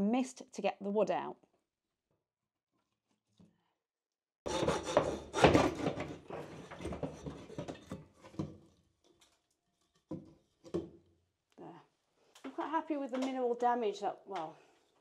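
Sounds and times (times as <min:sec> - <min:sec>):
wood scraping and knocking: 0:04.5 - 0:08.7.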